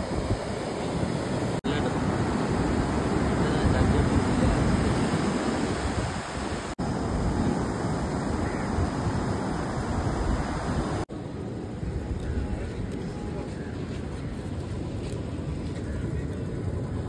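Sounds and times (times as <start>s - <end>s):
wind buffeting microphone: 0.0s - 11.0s
surf breaking on beach: 0.0s - 11.1s.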